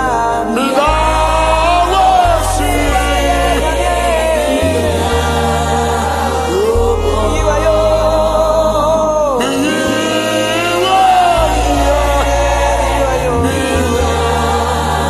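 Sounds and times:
keyboard and bass: 0:00.0 - 0:15.0
person singing gospel: 0:00.0 - 0:15.0.

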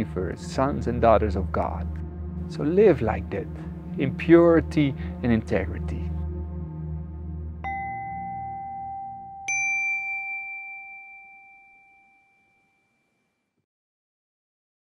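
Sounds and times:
low musical drone: 0:00.0 - 0:10.4
struck bell chimes: 0:07.6 - 0:12.8.

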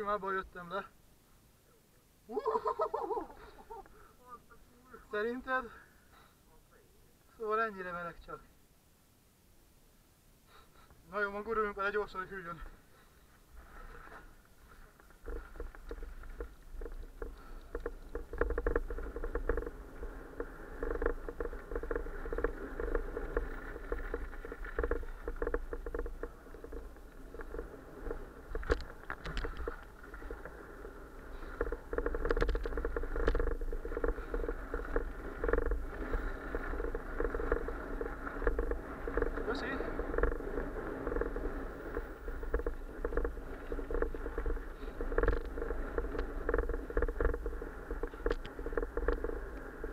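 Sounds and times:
bike rattling over bumps: 0:11.1 - 0:49.9
bike tyres crunching on gravel: 0:12.6 - 0:49.9.

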